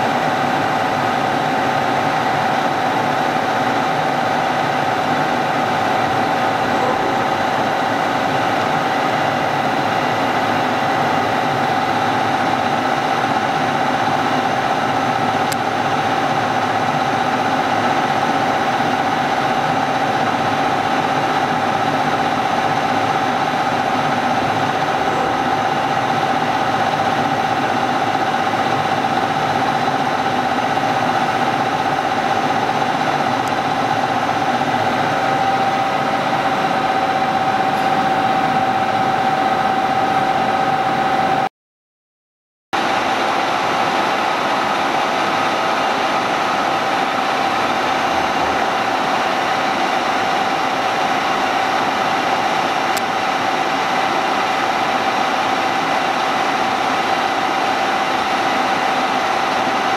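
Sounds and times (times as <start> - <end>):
milling machine humming: 0.0 - 41.4, 42.8 - 59.9
high steady whine: 0.0 - 41.5.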